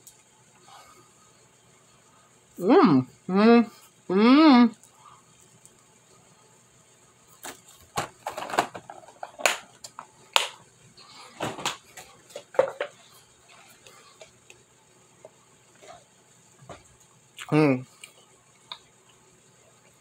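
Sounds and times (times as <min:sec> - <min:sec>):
plastic containers handled: 0:11.3 - 0:13.0.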